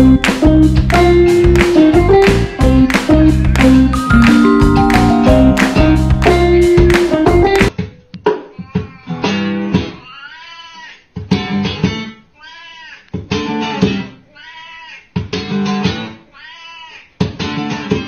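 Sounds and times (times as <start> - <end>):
acoustic guitar strumming chords: 0.0 - 7.7.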